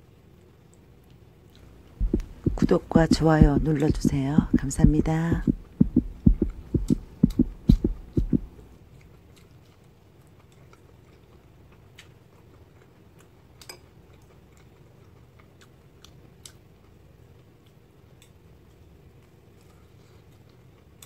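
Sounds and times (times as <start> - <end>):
person chewing food: 8.9 - 17.0.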